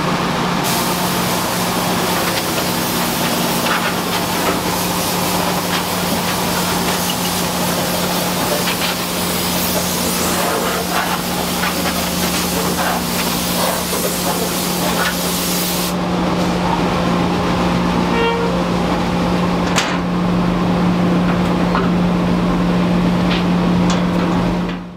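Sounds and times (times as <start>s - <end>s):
steady machine hum: 0.0s - 24.9s
compressed air hissing: 0.6s - 16.0s.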